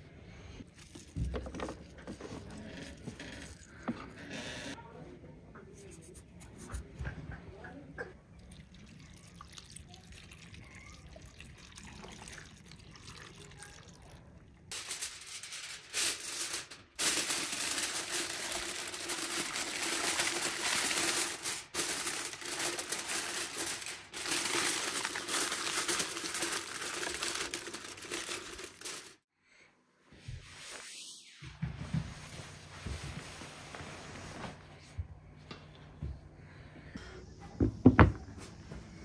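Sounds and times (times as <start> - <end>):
water trickling into a pot: 8.2 - 14.7
aluminium foil crinkling: 14.7 - 29.2.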